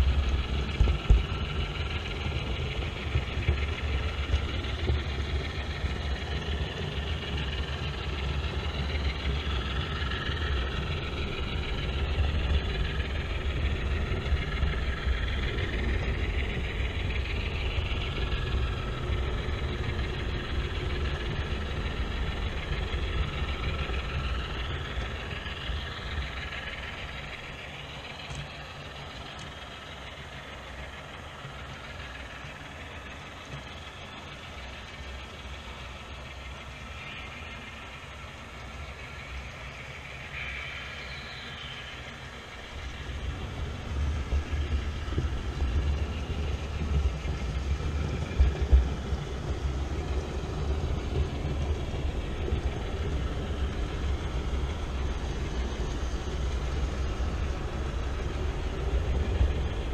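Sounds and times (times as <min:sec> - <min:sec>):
model locomotive rumble: 0:00.0 - 0:59.9
model freight cars rattling on track: 0:01.2 - 0:59.9.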